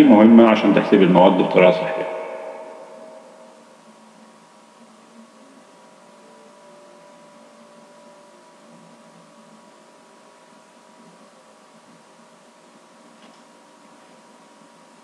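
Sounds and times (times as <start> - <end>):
low hum: 0.0 - 4.2
thin steady tones: 0.0 - 10.4.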